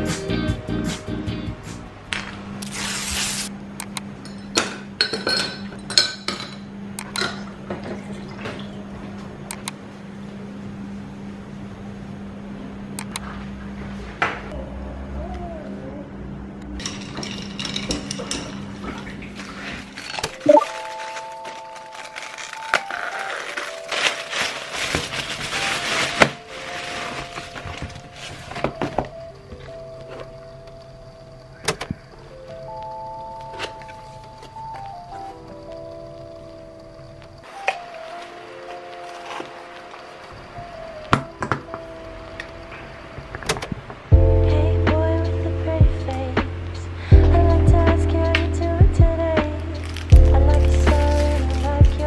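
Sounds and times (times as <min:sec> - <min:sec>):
plastic mailer bag rustling: 0:19.4 - 0:29.0, 0:49.8 - 0:51.8
ice cubes clinking in glass: 0:20.0 - 0:27.0, 0:49.8 - 0:51.8
soft background music: 0:20.4 - 0:52.0
steady low hum: 0:41.8 - 0:52.0.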